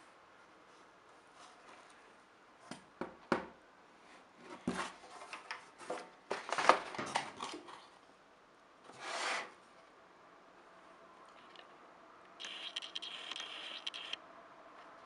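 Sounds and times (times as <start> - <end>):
rustling and scraping: 4.0 - 7.8
short rubbing sound: 12.4 - 14.2.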